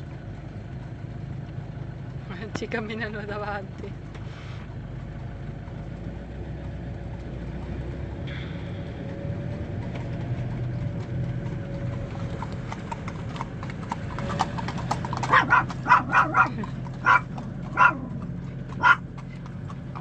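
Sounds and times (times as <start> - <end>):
horse hooves on asphalt: 0.0 - 20.0
van engine humming: 0.0 - 20.0
small dog yapping: 15.2 - 18.2, 18.8 - 19.0.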